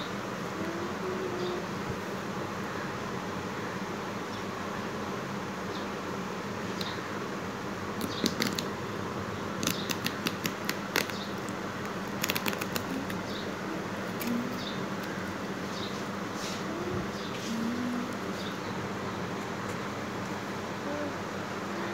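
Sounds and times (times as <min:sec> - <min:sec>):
steady background hum: 0:00.0 - 0:21.9.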